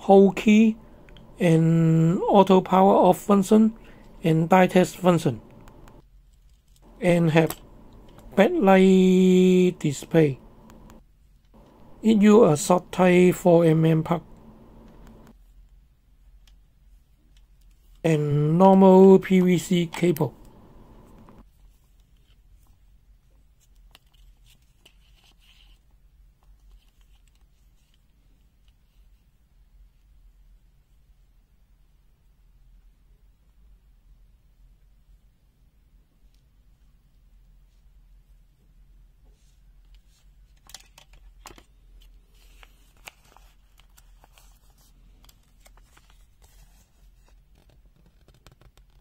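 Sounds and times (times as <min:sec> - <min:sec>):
steady low hum: 0:00.0 - 0:06.0, 0:06.8 - 0:15.4, 0:18.1 - 0:21.5
cables rustling in hands: 0:19.7 - 0:29.2, 0:39.3 - 0:48.6.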